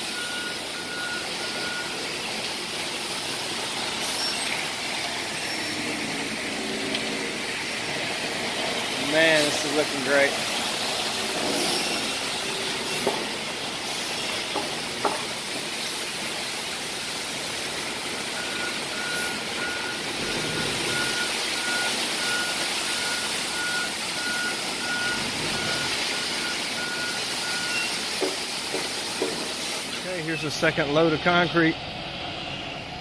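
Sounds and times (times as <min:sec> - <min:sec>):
reversing alarm beeps: 0:00.0 - 0:02.0, 0:18.3 - 0:28.0
concrete mixer truck rushing: 0:00.0 - 0:33.0.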